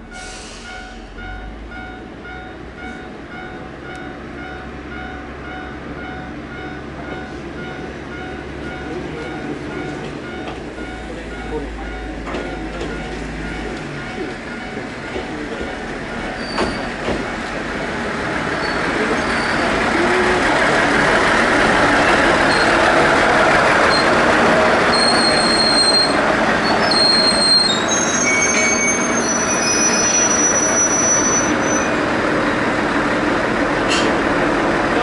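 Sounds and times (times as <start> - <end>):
diesel railcar passing: 0.0 - 35.0
wheels squealing on rails: 9.2 - 32.0.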